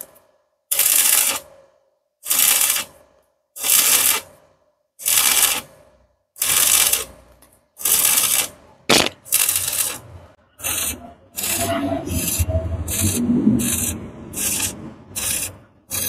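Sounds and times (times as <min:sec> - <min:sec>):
welding arc crackling: 0:00.7 - 0:01.5, 0:02.2 - 0:03.0, 0:03.6 - 0:04.3, 0:05.0 - 0:05.8, 0:06.4 - 0:07.1, 0:07.8 - 0:16.0.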